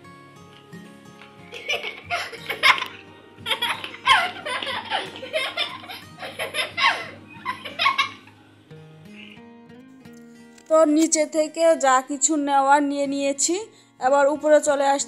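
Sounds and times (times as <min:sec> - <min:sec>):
background music: 0:00.0 - 0:15.0
girl laughing: 0:01.5 - 0:08.3.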